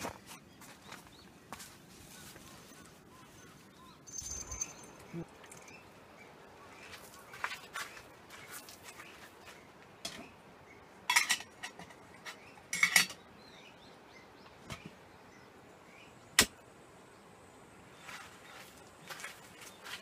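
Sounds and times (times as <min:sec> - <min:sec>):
camping gear clinking: 0:04.0 - 0:05.8, 0:11.1 - 0:13.2.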